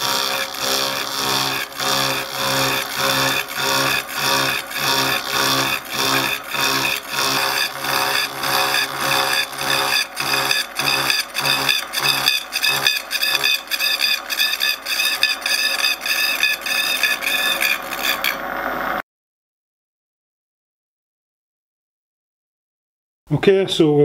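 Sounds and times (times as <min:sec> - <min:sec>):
milling cutter scraping metal: 0:00.0 - 0:18.5.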